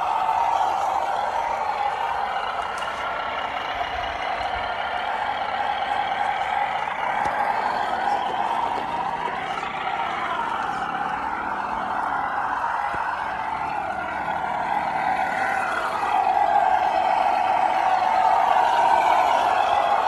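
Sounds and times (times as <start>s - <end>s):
electric motor and gearbox whine: 0.0s - 20.0s.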